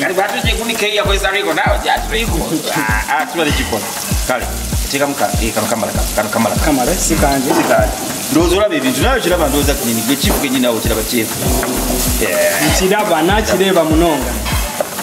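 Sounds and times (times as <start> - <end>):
background music with deep bass beat: 0.0 - 15.0
vegetables sizzling in oil: 0.0 - 15.0.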